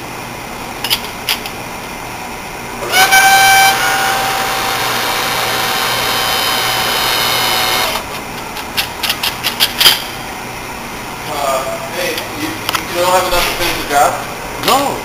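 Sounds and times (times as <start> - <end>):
hydraulic crimper whine: 2.8 - 8.5.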